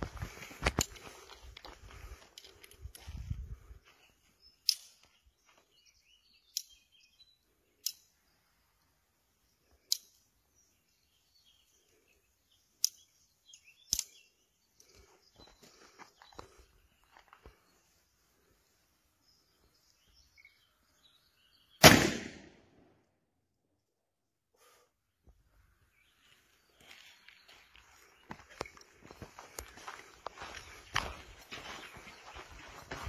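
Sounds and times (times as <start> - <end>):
revolver metallic clicks: 9.8 - 10.3, 13.8 - 14.2.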